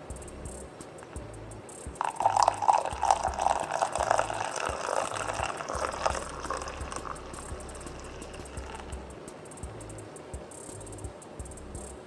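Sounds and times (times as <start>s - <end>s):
coffee pouring into a mug: 2.0s - 8.9s.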